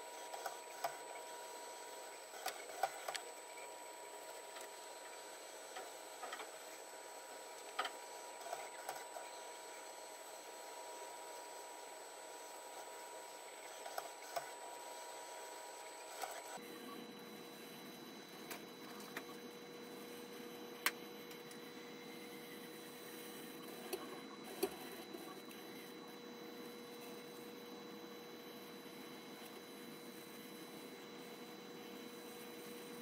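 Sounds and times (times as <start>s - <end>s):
robot arm mechanical whine: 11.6s - 33.0s.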